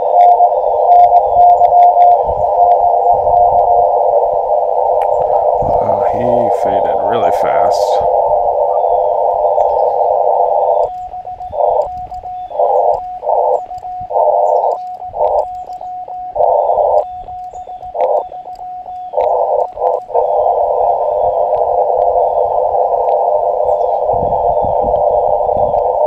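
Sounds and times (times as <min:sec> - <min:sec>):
morse code sidetone: 0:00.0 - 0:26.0
radio receiver hiss: 0:00.0 - 0:26.0
birds chirping: 0:05.0 - 0:26.0.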